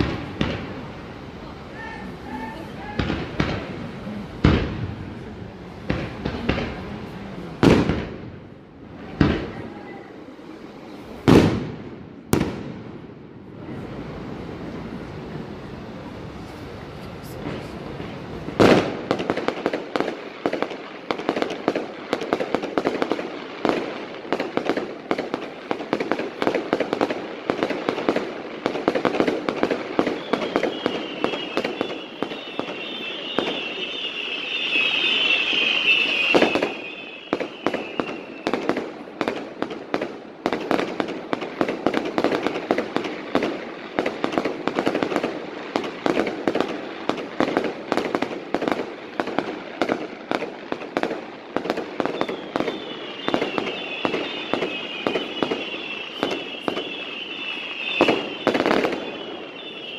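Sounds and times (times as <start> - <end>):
fireworks bangs and crackles: 0.0 - 59.9
shrill firework whistles: 30.0 - 38.8, 52.0 - 59.9.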